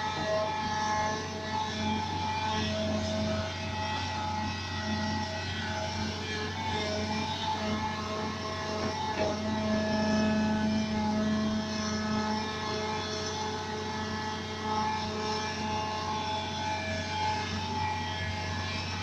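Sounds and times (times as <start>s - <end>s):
excavator diesel engine droning: 0.0s - 19.0s
whining tones: 0.0s - 19.0s.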